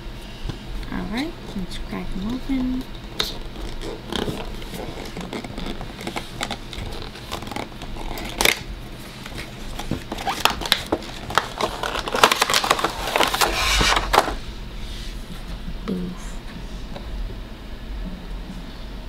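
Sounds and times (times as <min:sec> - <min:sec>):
cardboard and plastic packaging handled: 0:03.0 - 0:14.4.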